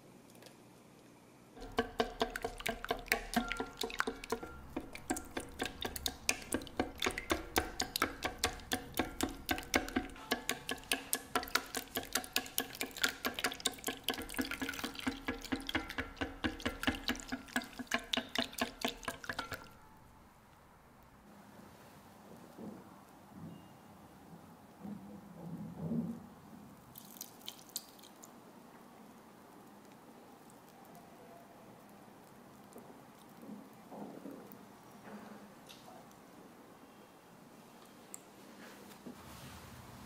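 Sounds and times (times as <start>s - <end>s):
whisk beating in metal bowl: 1.6s - 19.8s
liquid sloshing: 1.6s - 20.0s.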